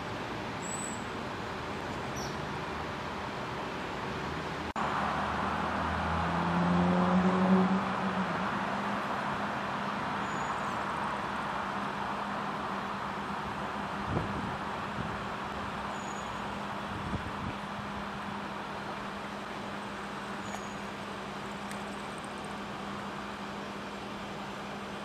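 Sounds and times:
city traffic noise: 0.0s - 25.0s
vehicle engine passing close: 4.8s - 10.2s.

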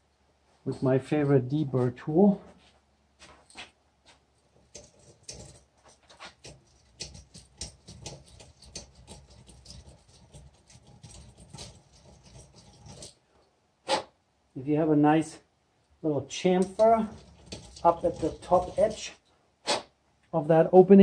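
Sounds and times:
deburring blade scraping metal: 4.6s - 13.2s, 16.6s - 19.2s.

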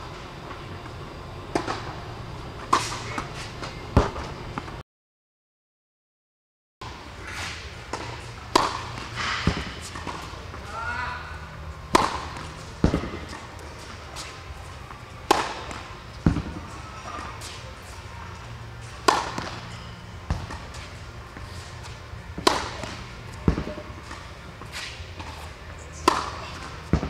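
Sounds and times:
low hum: 0.0s - 4.8s
tennis racket striking ball: 7.9s - 10.3s, 11.9s - 13.4s, 15.3s - 16.6s, 19.0s - 19.6s, 22.4s - 25.4s, 26.0s - 27.0s.

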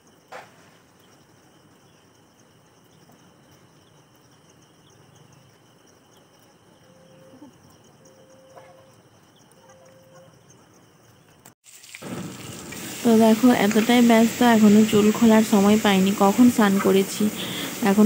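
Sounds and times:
insect chorus: 0.0s - 18.0s
faint held tone: 6.8s - 10.6s.

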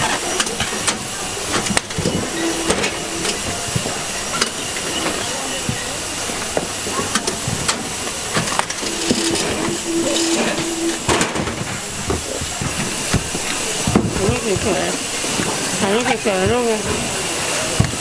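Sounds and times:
steady hum: 1.7s - 4.8s, 8.8s - 12.4s.

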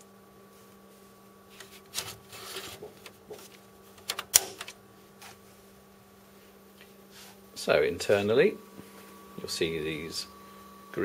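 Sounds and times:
server fans humming: 0.0s - 11.0s
drive tray sliding rustle: 1.6s - 3.6s.

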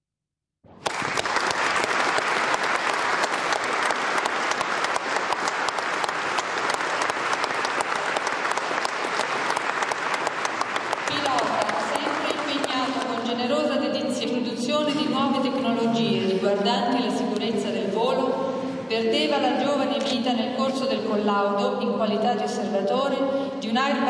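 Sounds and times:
audience applauding: 0.7s - 13.4s.

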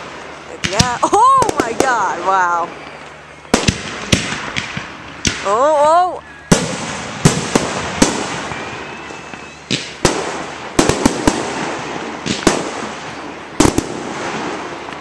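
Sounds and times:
fireworks bangs: 0.0s - 15.0s
fireworks crackling: 0.0s - 15.0s
rising whistle: 8.3s - 9.7s.

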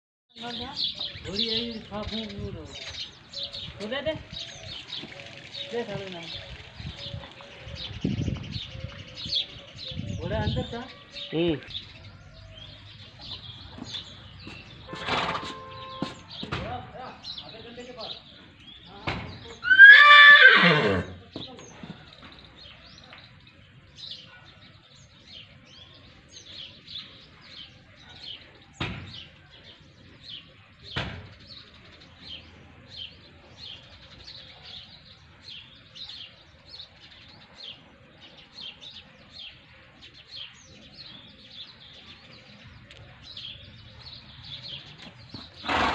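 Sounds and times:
small birds chirping: 0.3s - 45.9s
sharp knocks: 14.9s - 16.9s.

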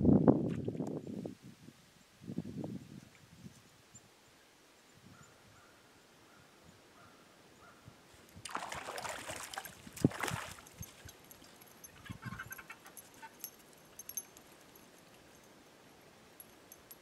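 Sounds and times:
stream water splashing: 8.4s - 11.7s.

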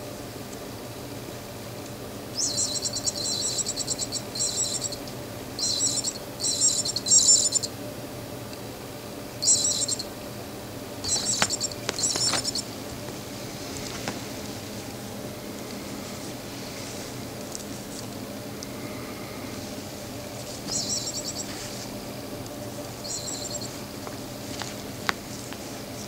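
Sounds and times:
electronic bird chirping trills: 2.3s - 7.8s, 9.3s - 10.2s, 11.0s - 12.7s, 20.2s - 21.6s, 23.0s - 23.9s.

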